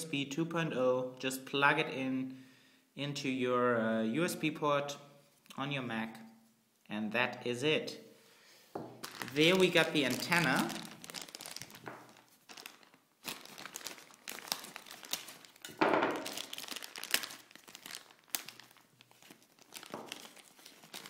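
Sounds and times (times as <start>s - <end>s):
plastic bag crinkling: 9.0s - 21.0s.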